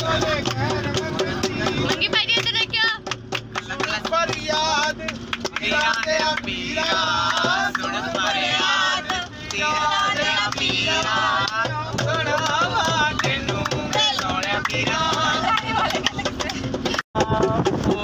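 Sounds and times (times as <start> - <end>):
man singing with music: 16.2 - 18.0.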